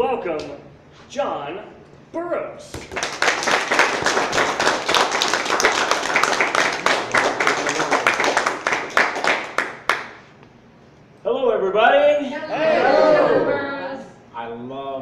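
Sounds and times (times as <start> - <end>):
audience applauding: 2.8 - 10.3.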